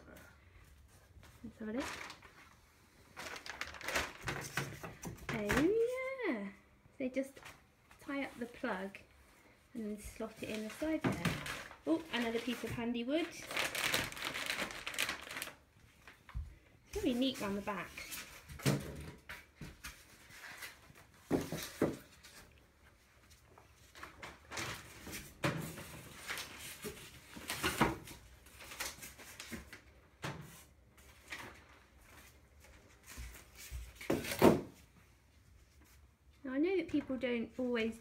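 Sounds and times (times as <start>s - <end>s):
packing material rustling: 1.5s - 4.8s, 10.3s - 16.3s.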